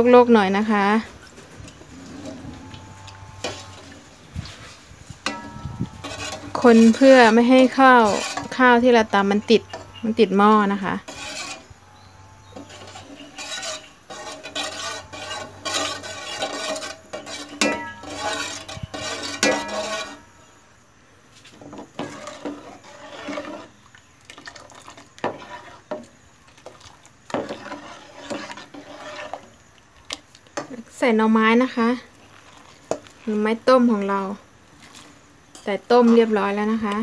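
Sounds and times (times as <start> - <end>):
metal ladle scraping metal pot: 1.7 - 20.5, 21.6 - 29.6
ladle clinking on pot: 5.2 - 7.1, 12.6 - 20.2.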